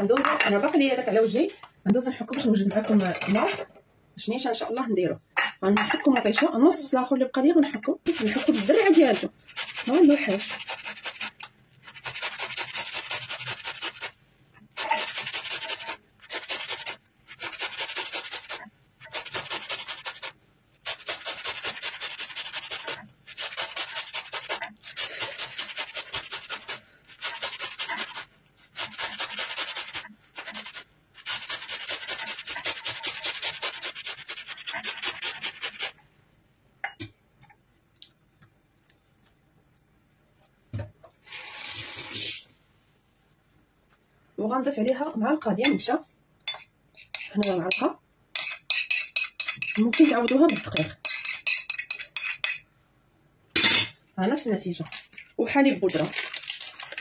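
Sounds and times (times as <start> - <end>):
tomato scraping on metal grater: 8.1 - 14.2, 14.8 - 36.0.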